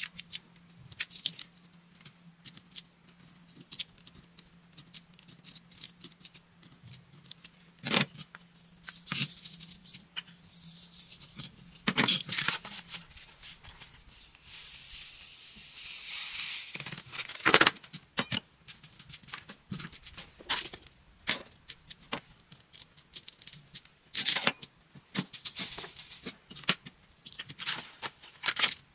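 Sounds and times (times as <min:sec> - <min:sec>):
sand pouring hiss: 0:14.1 - 0:16.9.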